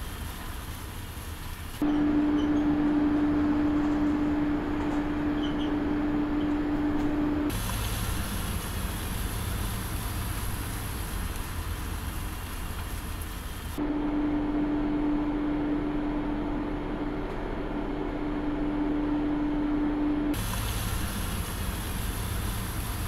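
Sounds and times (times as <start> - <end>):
bus running: 0.0 - 23.0.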